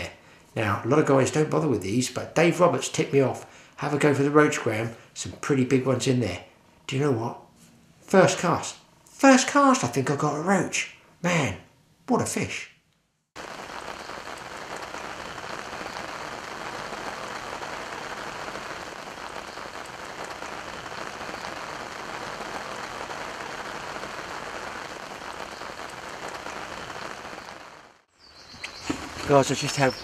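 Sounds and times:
rain falling on a lake: 13.4s - 30.0s.

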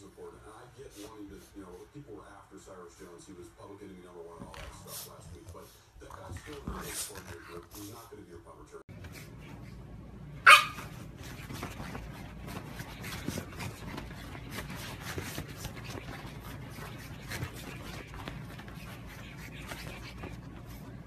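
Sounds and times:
steady low hum: 0.0s - 21.0s
puppy scrambling on bedding: 10.5s - 21.0s.

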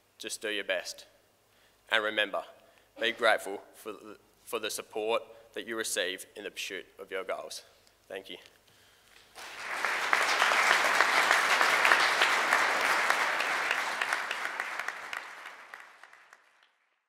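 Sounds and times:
audience applauding: 9.2s - 16.9s.

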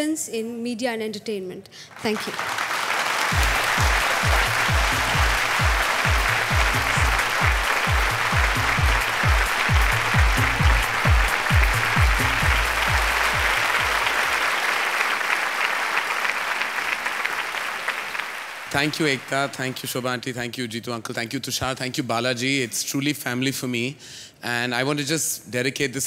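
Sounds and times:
audience applauding: 1.9s - 20.2s
background music: 3.1s - 17.1s
deep drum beat: 3.3s - 14.2s.

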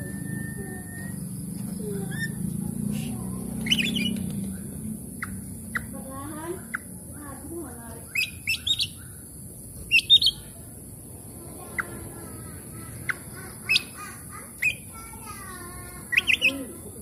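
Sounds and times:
bird whistling song: 0.0s - 2.5s, 3.5s - 6.0s, 8.0s - 9.3s, 9.9s - 10.5s, 13.0s - 14.0s, 14.6s - 15.0s, 16.0s - 16.7s
bird chattering: 0.0s - 17.0s.

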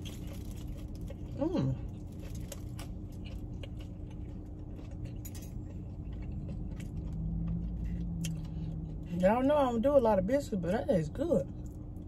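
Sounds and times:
chewing with mouth clicks: 0.0s - 9.6s
steady low hum: 0.0s - 12.0s.

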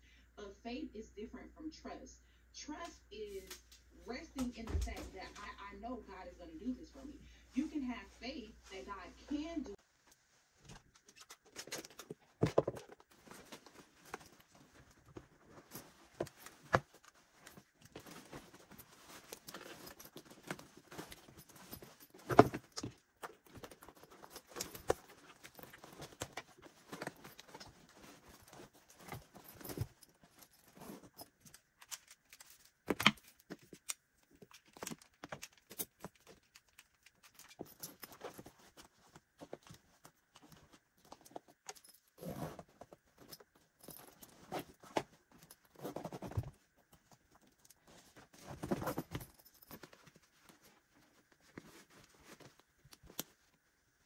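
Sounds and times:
fabric rustling: 6.5s - 54.0s
metal zipper pulls clinking: 11.0s - 53.4s
zipper zipping: 42.2s - 42.7s.

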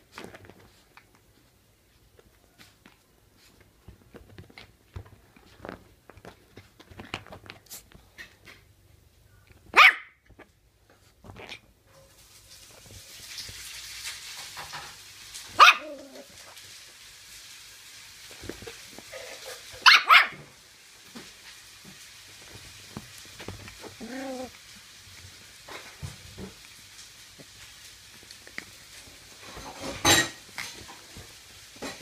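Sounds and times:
small dog barking: 9.7s - 10.2s, 15.5s - 16.3s, 19.1s - 20.5s.

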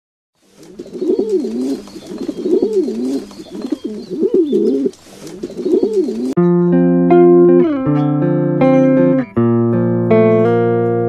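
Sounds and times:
pigeon cooing: 0.5s - 6.4s.

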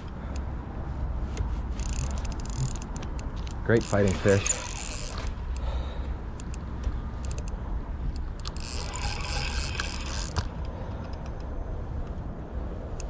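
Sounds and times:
fishing reel ticking and clicking: 1.8s - 5.7s, 7.2s - 7.6s, 8.2s - 10.5s.

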